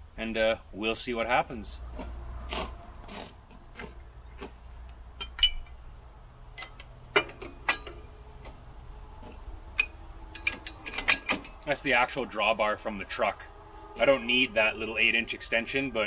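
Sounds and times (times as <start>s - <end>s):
metal drawbar clinking: 5.2s - 5.9s, 6.5s - 11.9s.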